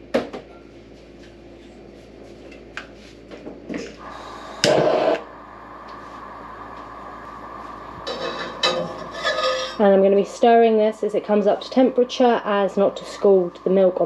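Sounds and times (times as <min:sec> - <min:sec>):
burner catching burst: 0:04.0 - 0:08.4
gas hissing: 0:04.0 - 0:14.0.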